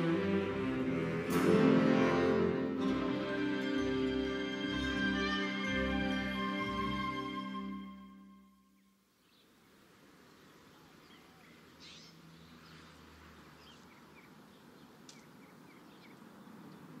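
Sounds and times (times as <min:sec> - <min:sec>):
logo music: 0:00.0 - 0:08.5
faint street ambience: 0:00.0 - 0:17.0
small birds chirping: 0:08.7 - 0:17.0.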